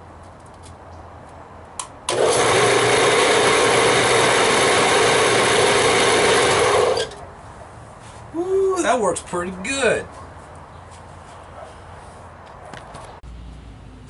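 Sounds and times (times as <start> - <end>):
saw motor whirring: 2.1 - 7.2.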